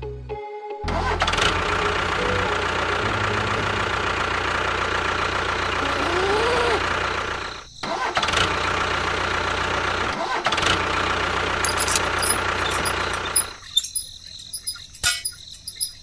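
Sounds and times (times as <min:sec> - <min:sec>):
motor running: 0:01.2 - 0:13.6.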